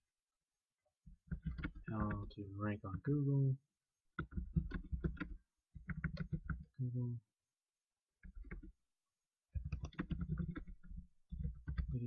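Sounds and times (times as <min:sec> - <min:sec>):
typing on computer keyboard: 0:01.2 - 0:02.3, 0:04.2 - 0:06.7, 0:08.2 - 0:08.8, 0:09.5 - 0:12.0.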